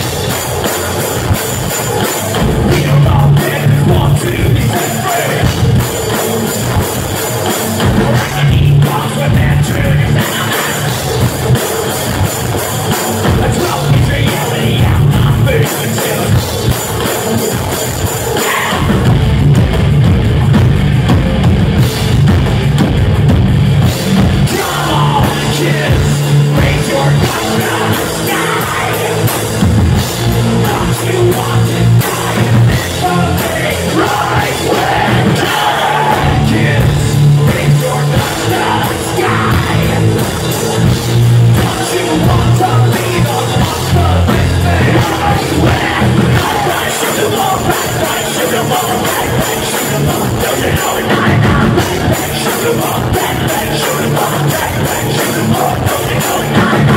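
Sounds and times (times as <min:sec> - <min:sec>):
bass guitar: 0:00.0 - 0:56.9
drum kit: 0:00.0 - 0:56.9
electric guitars: 0:00.0 - 0:56.9
person singing: 0:02.0 - 0:06.5, 0:07.8 - 0:11.8, 0:12.6 - 0:16.7, 0:18.2 - 0:19.1, 0:24.3 - 0:40.6, 0:41.4 - 0:56.9.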